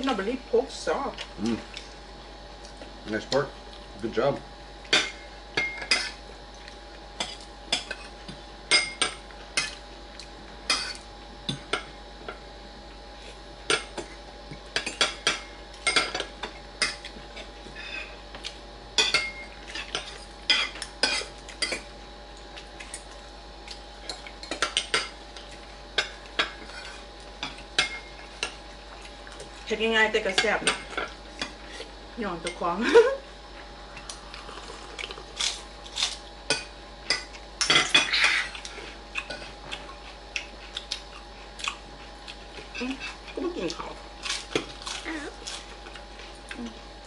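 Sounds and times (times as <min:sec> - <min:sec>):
faint steady hum: 0:00.0 - 0:47.0.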